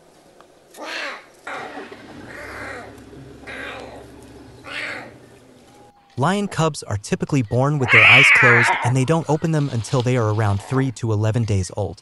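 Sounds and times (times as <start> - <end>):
lion cub mewing: 0.8 - 5.2, 7.8 - 9.2.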